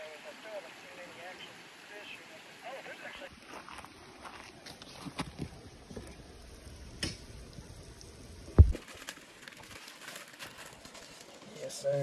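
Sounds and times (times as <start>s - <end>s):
faint outdoor background: 0.0s - 12.0s.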